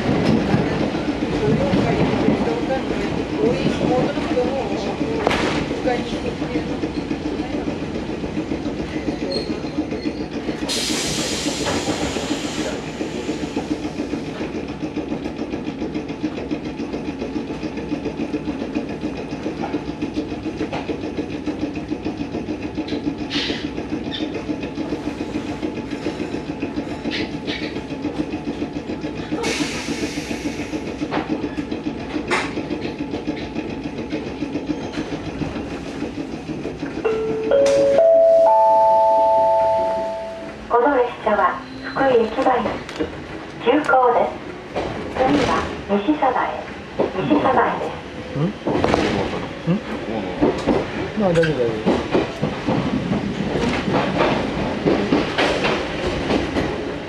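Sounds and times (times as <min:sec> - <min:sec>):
train equipment low drone: 0:00.0 - 0:57.0
air hissing: 0:10.7 - 0:13.8.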